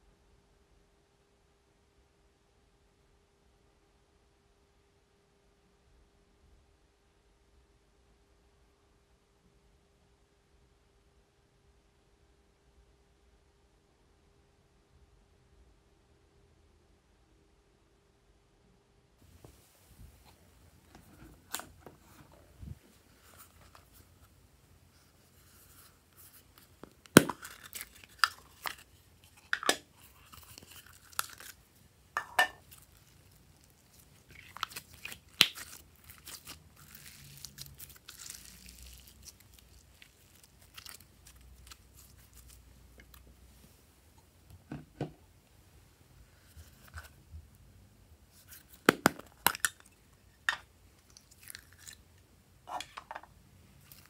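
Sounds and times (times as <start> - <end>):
plastic container clicks opening: 26.8 - 29.9.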